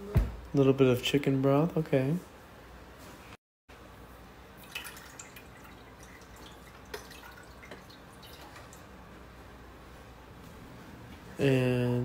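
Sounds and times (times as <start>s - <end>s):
dripping and splashing: 4.6s - 8.9s.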